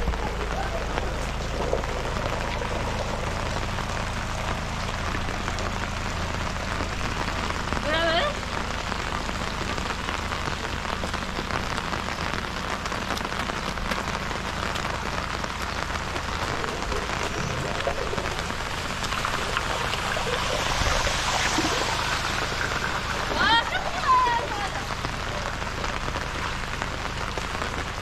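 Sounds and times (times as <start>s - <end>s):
heavy rain: 0.0s - 28.0s.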